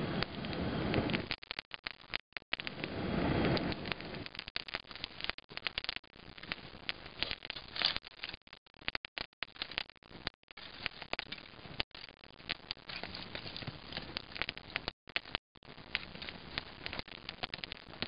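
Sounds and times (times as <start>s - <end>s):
sticks crackling and popping: 0.2s - 18.0s
person blowing on fire: 2.7s - 4.3s.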